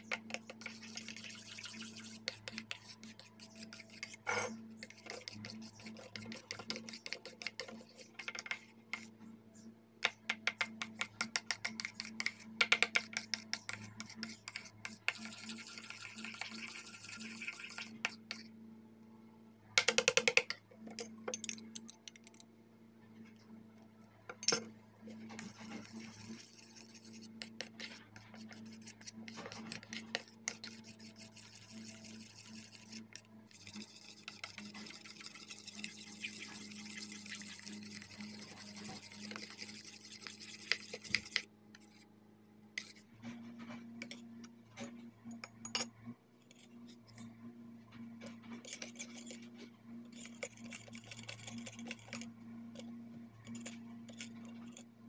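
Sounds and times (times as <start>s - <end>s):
spoon stirring thick mixture: 0.0s - 9.1s, 10.1s - 18.5s, 24.5s - 41.9s, 48.6s - 54.8s.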